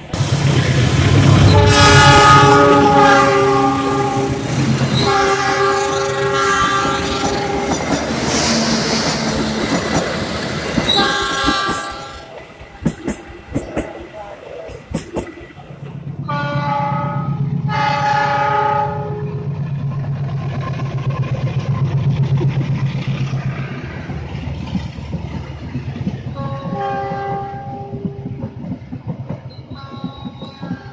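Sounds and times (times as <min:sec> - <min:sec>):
train rumbling past: 0:00.0 - 0:30.9
train horn blasts: 0:01.1 - 0:09.4, 0:10.9 - 0:12.4, 0:16.2 - 0:19.5, 0:26.3 - 0:28.3.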